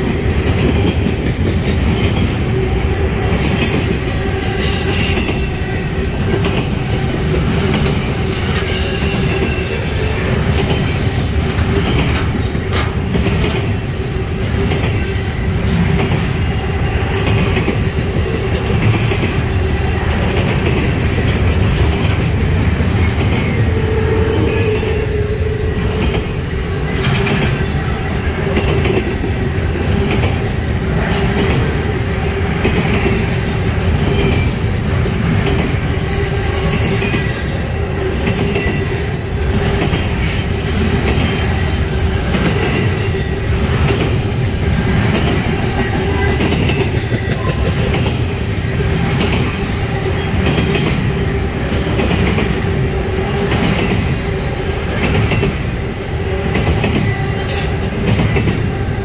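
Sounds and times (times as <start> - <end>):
steel wheels rumbling on rail: 0.0 - 59.0
clicks and clanks: 11.5 - 13.7.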